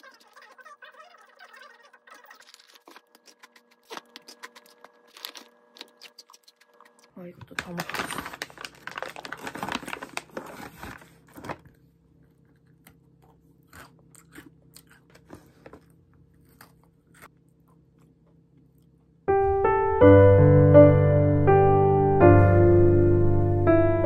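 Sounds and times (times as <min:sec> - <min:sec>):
chewing crisp cookie: 0:00.0 - 0:07.2, 0:12.1 - 0:19.1
plastic bag crinkling: 0:00.0 - 0:11.7
gentle piano music: 0:19.3 - 0:24.0.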